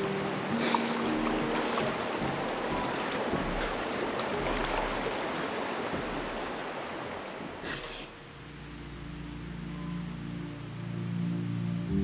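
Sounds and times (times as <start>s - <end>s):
river water rushing over rocks: 0.0s - 8.4s
person splashing in water: 0.5s - 7.8s.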